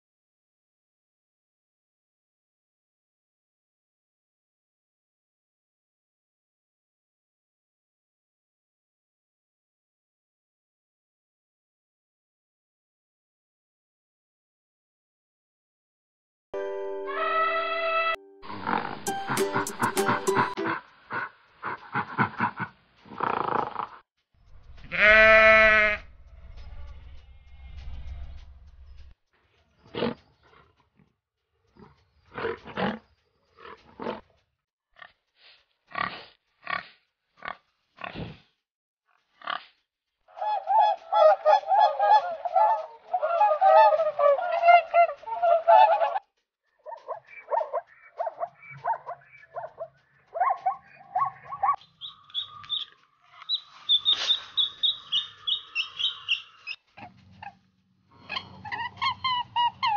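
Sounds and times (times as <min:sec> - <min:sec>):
high-pitched bird cries: 0:40.4 - 0:46.2, 0:46.8 - 0:57.6, 0:58.2 - 0:59.9
waterfowl honking: 0:40.4 - 0:46.2, 0:46.9 - 0:56.8.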